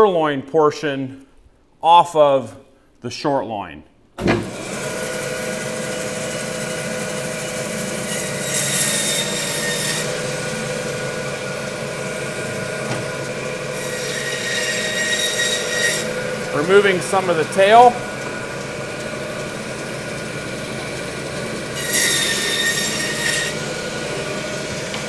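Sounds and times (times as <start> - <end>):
bandsaw motor hum: 4.2 - 25.0
bandsaw blade rasping through bone: 7.9 - 10.4, 13.7 - 16.5, 21.8 - 24.2.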